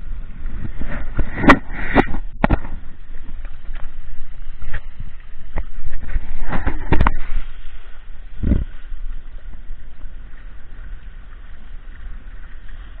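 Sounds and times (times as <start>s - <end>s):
water rushing along hull: 0.0s - 13.0s
wind buffeting microphone: 0.0s - 13.0s.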